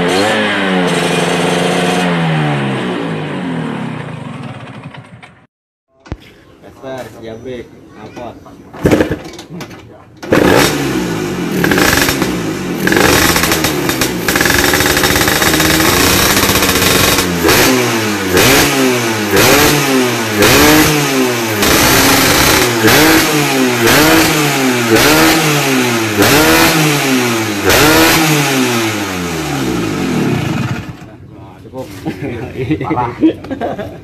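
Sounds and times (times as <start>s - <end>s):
scooter engine revving: 0.0s - 5.4s, 10.2s - 31.2s.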